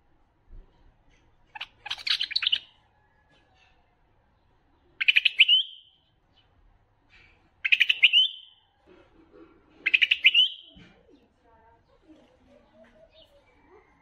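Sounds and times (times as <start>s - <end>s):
bird song with rising whistle: 5.0s - 6.0s, 7.6s - 8.6s, 9.9s - 10.7s.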